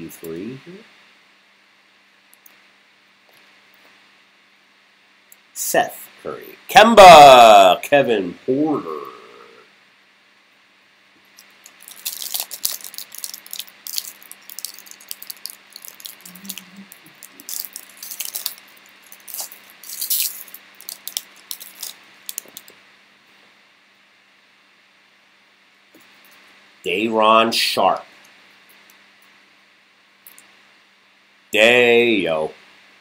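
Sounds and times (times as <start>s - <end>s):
plastic foil pack crinkling: 11.4s - 22.7s.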